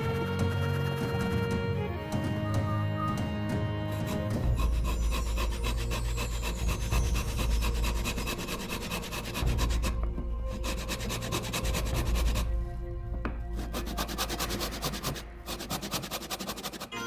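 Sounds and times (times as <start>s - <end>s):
hand saw cutting wood: 3.8s - 12.6s, 13.5s - 17.0s.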